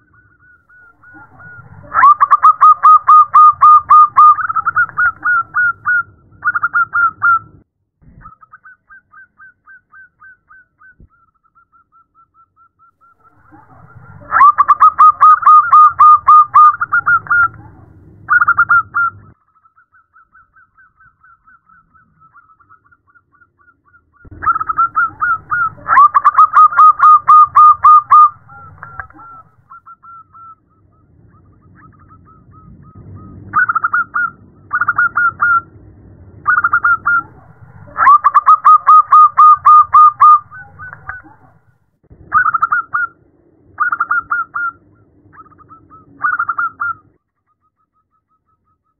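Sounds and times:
dove cooing in trilled coos: 0:00.4 - 0:07.4, 0:13.3 - 0:19.2, 0:24.3 - 0:30.6, 0:36.5 - 0:41.5.

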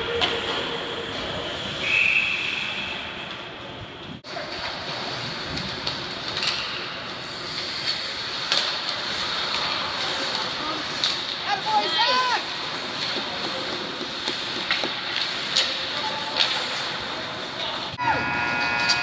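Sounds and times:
ice rink hum: 0:00.0 - 0:19.0
referee's whistle blast: 0:18.0 - 0:19.0.

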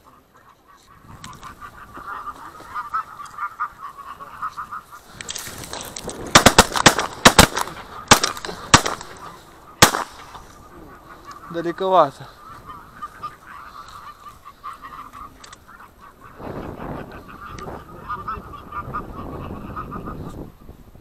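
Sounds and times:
geese honking: 0:00.0 - 0:20.5
shotgun shots: 0:06.3 - 0:10.4.

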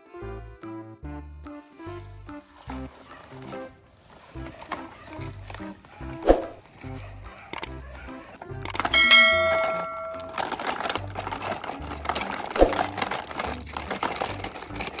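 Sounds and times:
background music with bass line: 0:00.0 - 0:03.5
bell-like notification ding: 0:09.0 - 0:10.4.

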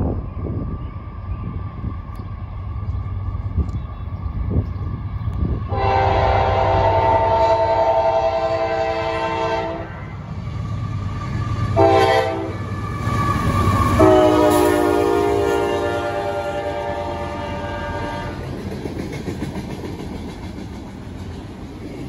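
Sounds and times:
locomotive rumble: 0:00.0 - 0:22.0
locomotive air horn blasts: 0:05.7 - 0:10.1, 0:11.8 - 0:12.6, 0:13.9 - 0:18.4.

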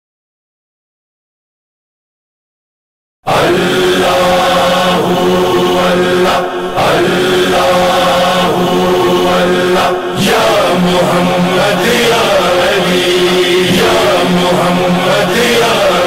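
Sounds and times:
chorus of voices chanting: 0:03.3 - 0:16.0
low hum: 0:07.0 - 0:16.0.

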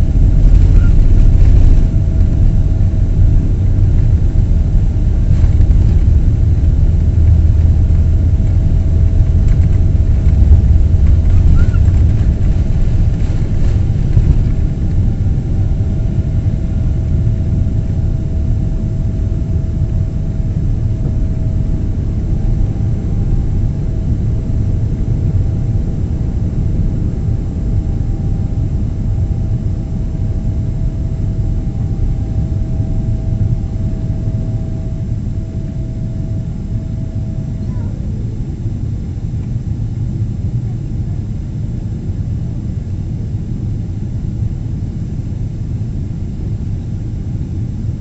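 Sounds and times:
jet engine low rumble: 0:00.0 - 0:48.0
thin steady hum: 0:00.0 - 0:48.0.

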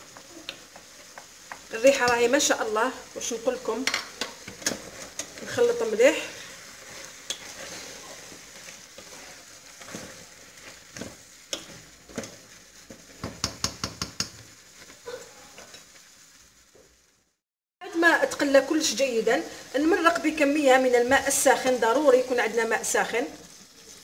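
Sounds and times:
wooden spoon scraping and knocking pot: 0:00.0 - 0:02.5, 0:03.6 - 0:15.9
food sizzling in a pot: 0:00.0 - 0:24.0.

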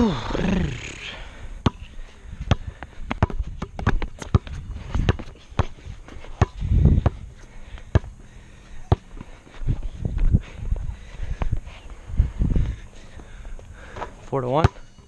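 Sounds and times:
basketball bouncing on asphalt: 0:01.6 - 0:09.4, 0:12.6 - 0:15.0.

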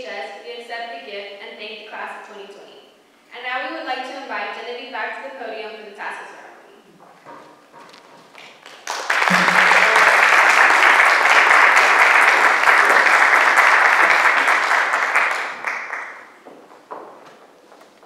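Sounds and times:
audience applauding: 0:08.6 - 0:16.4.

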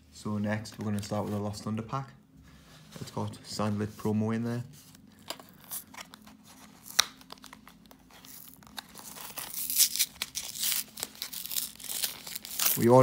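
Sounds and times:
plastic packaging being handled: 0:04.9 - 0:13.0
foil wrapper tearing and crackling: 0:05.4 - 0:13.0.

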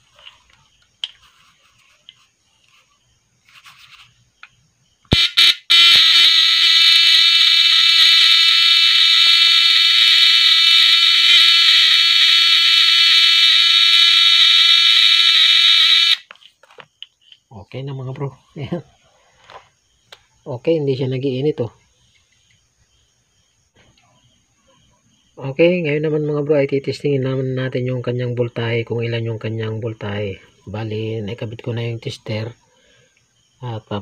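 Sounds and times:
loud electrical buzz: 0:05.1 - 0:16.3.

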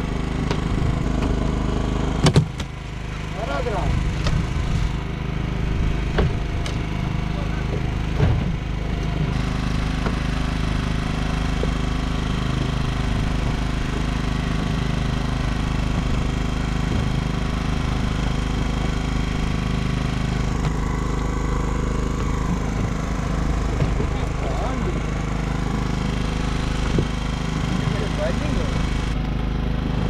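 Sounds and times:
boat engine droning: 0:00.0 - 0:30.0.

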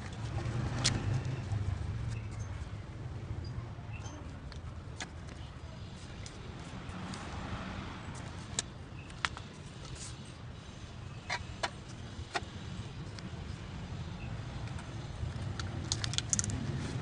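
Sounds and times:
sharp clicks and knocks: 0:15.5 - 0:16.6.

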